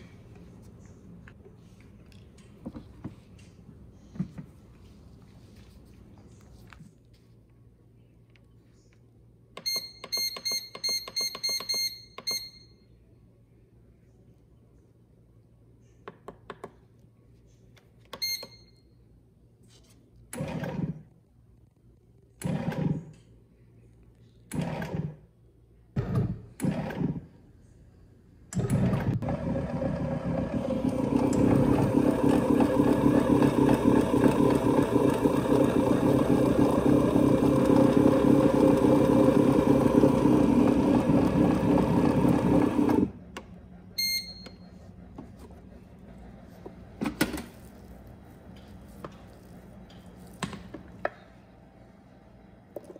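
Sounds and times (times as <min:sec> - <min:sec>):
kneading motor running: 0:28.6 - 0:43.1.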